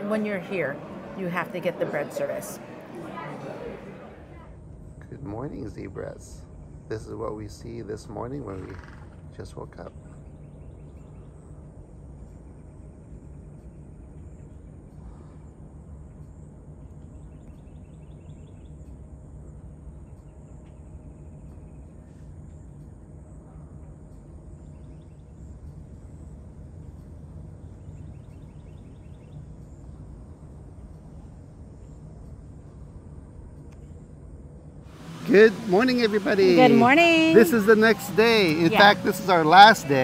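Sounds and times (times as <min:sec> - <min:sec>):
steady low hum: 0:00.0 - 0:40.0
faint insect trills: 0:04.6 - 0:34.9.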